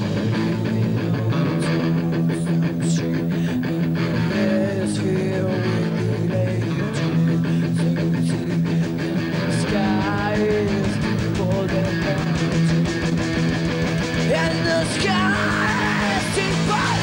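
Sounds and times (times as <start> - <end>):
punk rock band playing: 0.0 - 17.0
woman singing: 14.3 - 17.0.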